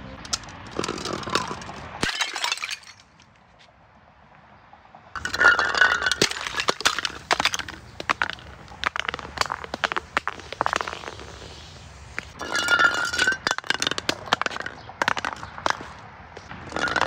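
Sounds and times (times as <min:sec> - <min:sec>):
glass bottles shattering: 0:00.8 - 0:03.1, 0:05.2 - 0:09.9, 0:12.3 - 0:15.8, 0:16.6 - 0:17.0
glass shards clinking: 0:00.8 - 0:03.1, 0:05.2 - 0:08.4, 0:12.3 - 0:15.8, 0:16.6 - 0:17.0.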